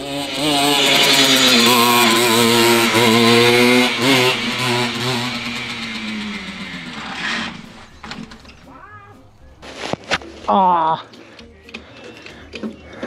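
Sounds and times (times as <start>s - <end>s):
moped engine revving: 0.0s - 10.1s.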